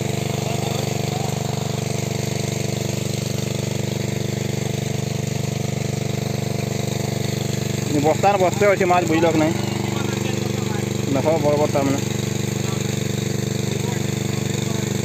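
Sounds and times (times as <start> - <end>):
small engine humming: 0.0 - 15.0.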